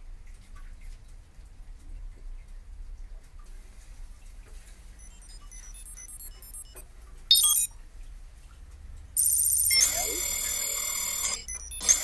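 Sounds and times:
electronic chime falling tones: 5.0 - 7.7, 9.2 - 12.0
high electronic beeps: 5.0 - 7.7, 9.2 - 12.0.

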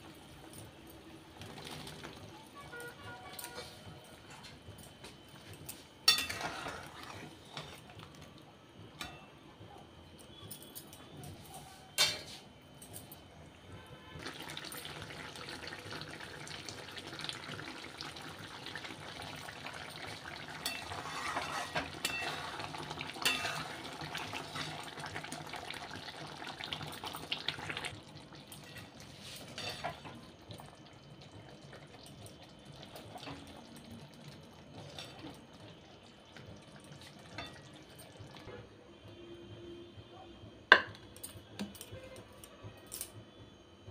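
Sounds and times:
curry bubbling and hissing: 0.0 - 9.0, 13.9 - 38.6.

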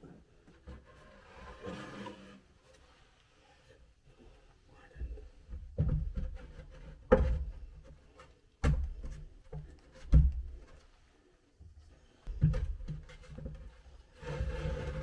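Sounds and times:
wood scraping and rubbing: 0.7 - 3.1, 12.3 - 15.0.

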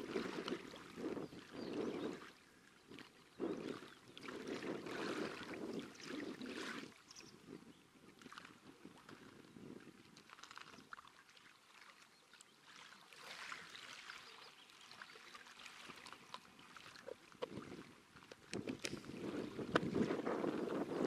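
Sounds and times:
small waves lapping on pebbles: 0.0 - 7.3, 8.1 - 21.0
fishing tackle clicks and rustles: 10.2 - 11.0, 18.2 - 21.0.

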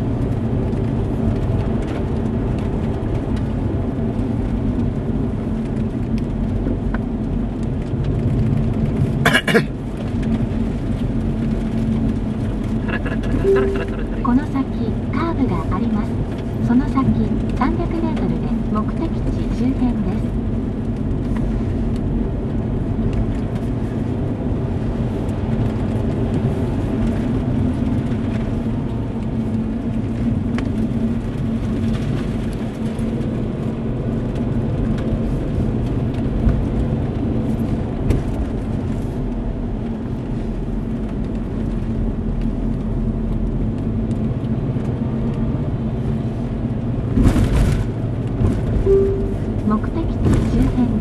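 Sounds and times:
car engine and road noise: 0.0 - 51.0
constant hum: 0.0 - 51.0
rush of noise: 12.6 - 14.8.

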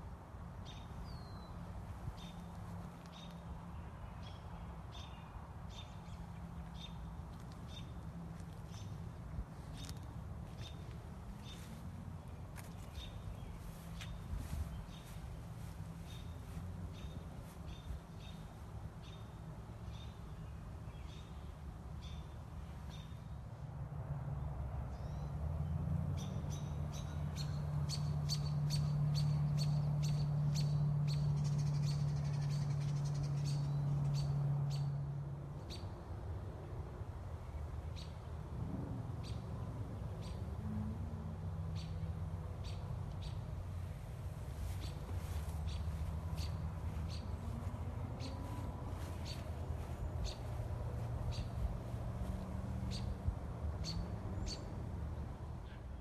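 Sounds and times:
small birds chirping: 0.6 - 23.4, 24.9 - 35.0, 41.6 - 54.8.

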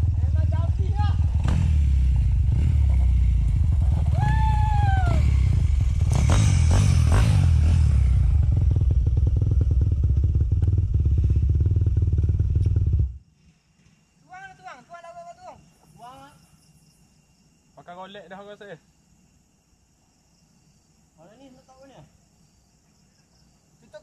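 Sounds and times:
dirt bike engine idling: 0.0 - 13.2.

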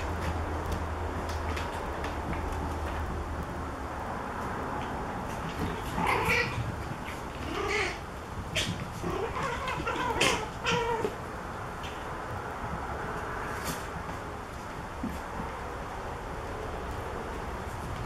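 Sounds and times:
puppies yipping and whining: 5.5 - 11.2.

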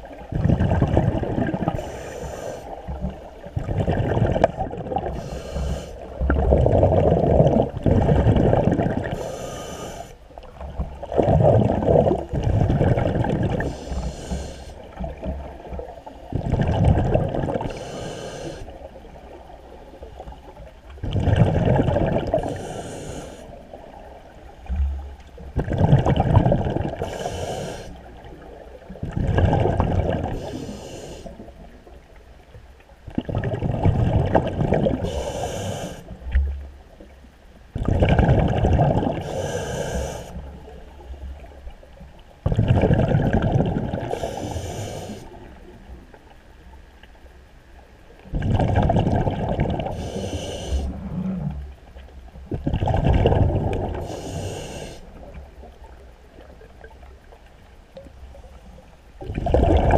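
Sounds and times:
exhaled bubbles rumbling underwater: 0.0 - 59.9
regulator inhale hiss: 1.7 - 3.2, 5.1 - 6.2, 9.1 - 10.2, 13.6 - 15.0, 17.6 - 18.9, 22.3 - 23.7, 27.0 - 28.1, 30.3 - 31.6, 35.0 - 36.2, 39.2 - 41.4, 44.1 - 45.4, 49.9 - 51.5, 53.9 - 55.4.

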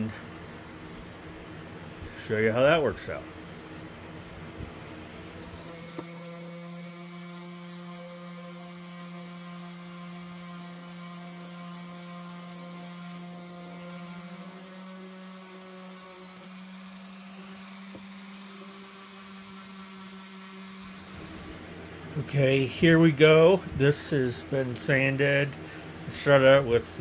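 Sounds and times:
electric sander motor humming: 5.0 - 21.7.

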